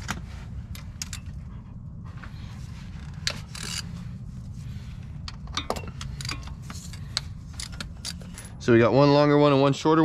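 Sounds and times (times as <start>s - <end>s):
ratchet clicking: 3.2s - 3.9s, 5.6s - 8.4s.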